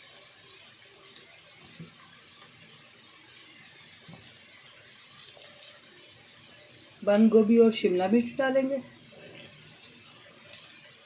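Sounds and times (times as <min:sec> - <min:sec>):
vegetables sizzling in a wok: 0:00.0 - 0:11.0.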